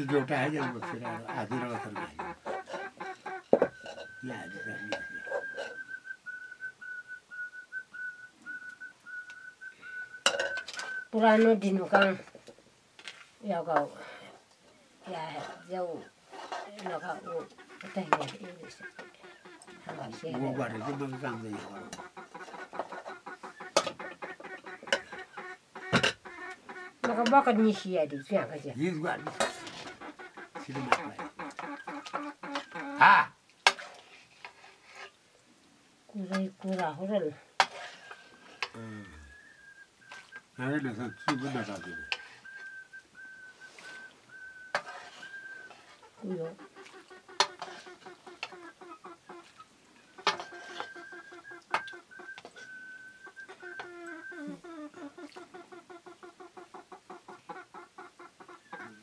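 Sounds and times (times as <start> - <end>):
hen squawk: 0.0 - 5.8, 15.1 - 33.3, 40.0 - 59.0
hens clucking: 0.0 - 6.5, 8.4 - 12.4, 13.4 - 35.1, 36.1 - 59.0
metal ladle clinking on pot: 10.2 - 10.8.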